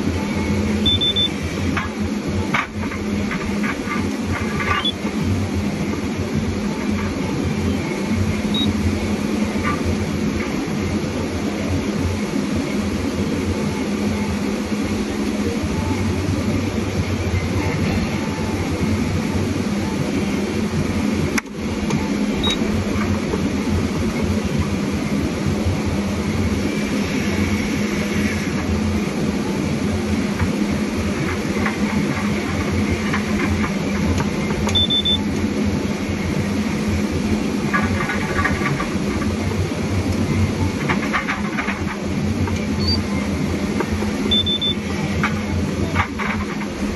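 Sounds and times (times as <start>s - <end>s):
diesel engine and hydraulics droning: 0.0s - 46.9s
short electronic beep: 0.8s - 1.4s, 8.5s - 8.7s, 34.7s - 35.2s, 44.3s - 44.8s.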